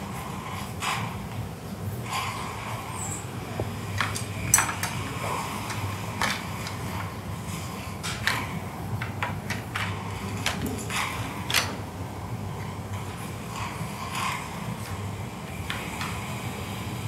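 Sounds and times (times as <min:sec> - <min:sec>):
surgical instruments clinking: 0:04.0 - 0:05.0.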